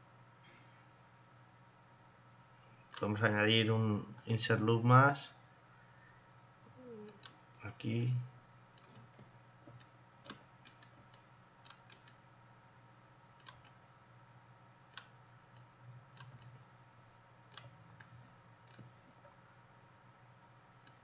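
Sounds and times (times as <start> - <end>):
computer mouse clicks: 8.8 - 12.2, 13.4 - 13.8, 14.9 - 16.6, 17.5 - 19.3, 20.8 - 21.0.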